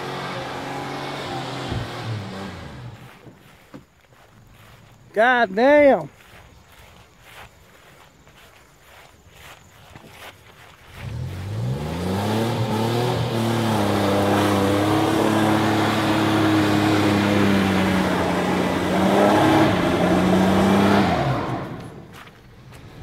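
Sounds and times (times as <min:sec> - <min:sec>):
pickup truck engine revving: 0:00.0 - 0:03.2, 0:11.0 - 0:22.3.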